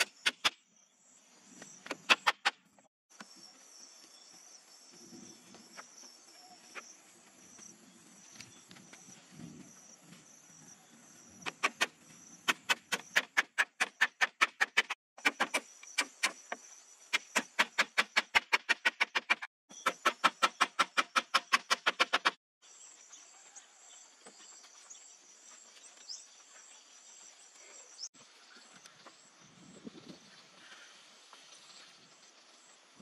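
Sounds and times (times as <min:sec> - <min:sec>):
hammer strikes on bamboo: 0:12.5 - 0:16.6, 0:17.2 - 0:22.4.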